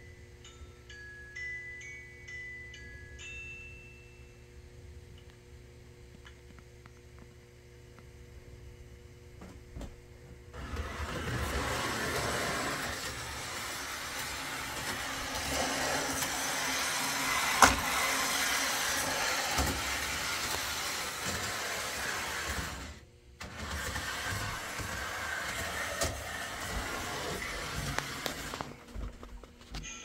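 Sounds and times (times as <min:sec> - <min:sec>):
toy trolley motor and wheels: 0:10.6 - 0:28.8.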